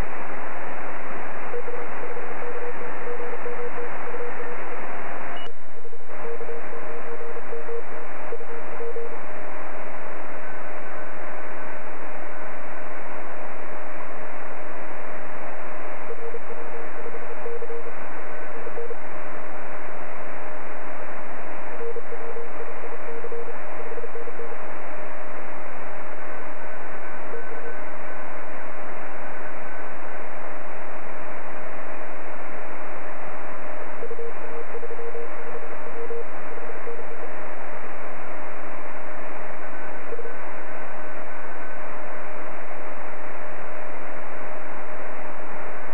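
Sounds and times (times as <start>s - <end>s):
radio band noise hiss: 0.0s - 45.9s.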